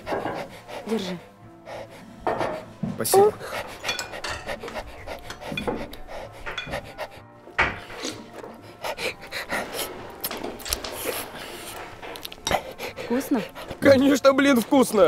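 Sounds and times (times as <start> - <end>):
metal spoon scraping ceramic bowl: 3.7 - 5.9.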